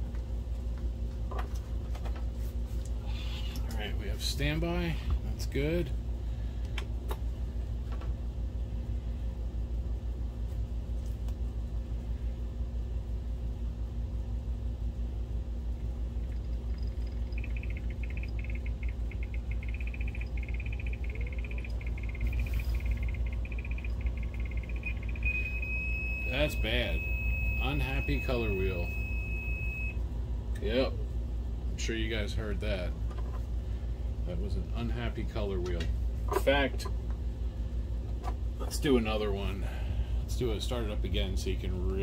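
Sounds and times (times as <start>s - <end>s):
low steady hum: 0.0s - 42.0s
motor chirping and whining: 16.2s - 30.0s.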